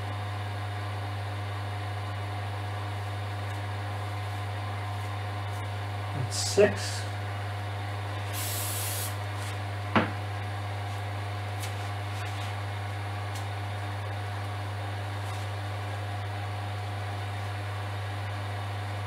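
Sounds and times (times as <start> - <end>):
aerosol spray hiss: 8.3 - 9.2.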